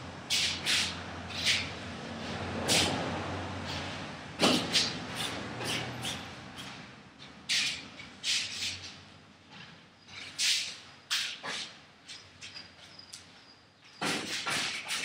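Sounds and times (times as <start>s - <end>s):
scuffs and squeaks on tiled floor: 0.3s - 1.8s, 4.6s - 6.8s, 7.5s - 9.0s, 9.6s - 15.0s.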